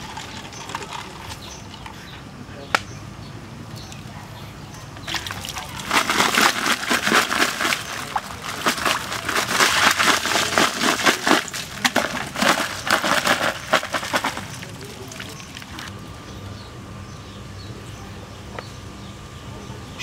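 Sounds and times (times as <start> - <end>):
crabs clattering in wicker basket: 0.0 - 1.9, 5.0 - 16.0.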